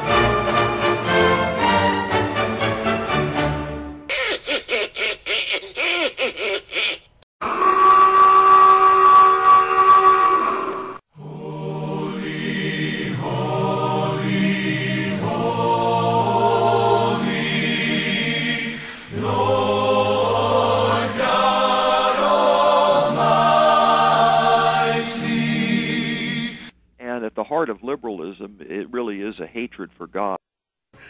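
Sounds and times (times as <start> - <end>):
choir singing long chords: 10.5 - 26.7.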